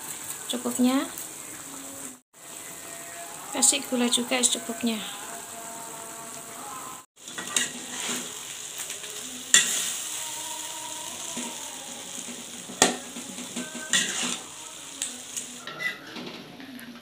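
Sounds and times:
food sizzling in a wok: 0.0s - 16.1s
metal spatula scraping wok: 7.2s - 8.5s, 9.5s - 10.1s, 12.1s - 14.6s, 15.5s - 17.0s.

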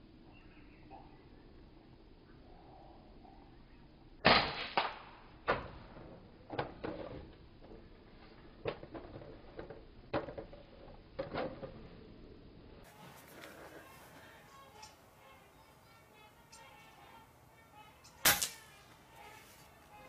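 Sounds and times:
air rifle shot: 4.2s - 5.2s, 18.2s - 18.8s.

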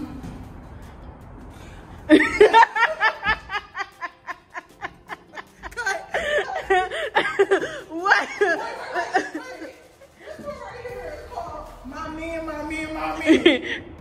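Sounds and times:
woman laughing: 2.1s - 10.6s, 13.2s - 13.8s.

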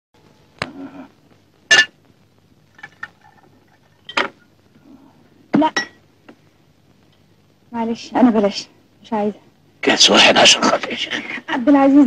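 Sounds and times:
glass bottle and glasses clinking: 5.8s - 6.0s.

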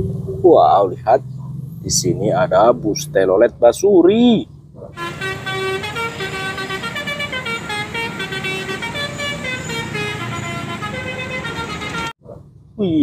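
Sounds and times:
bus horn playing musical tones: 5.0s - 12.2s.

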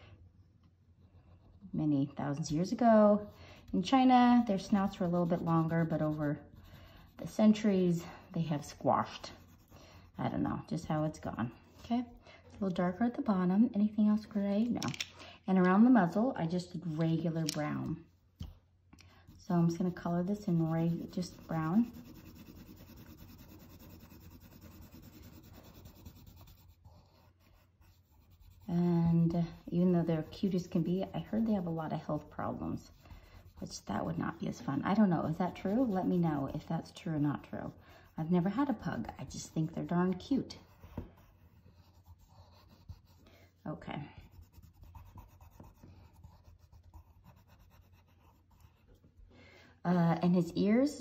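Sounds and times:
pencil shading on paper: 2.5s - 12.2s, 19.2s - 43.6s, 44.2s - 49.0s.

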